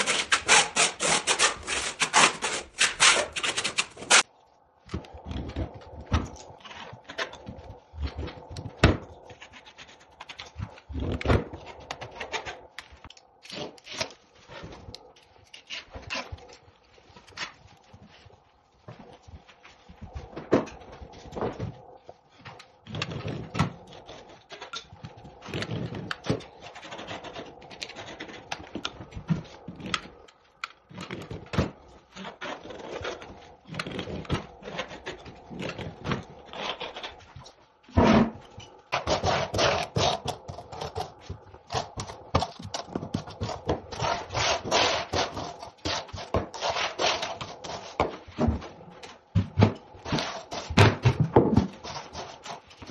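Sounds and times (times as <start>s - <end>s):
rubbing and scraping on concrete: 0.0s - 4.3s, 51.6s - 52.9s.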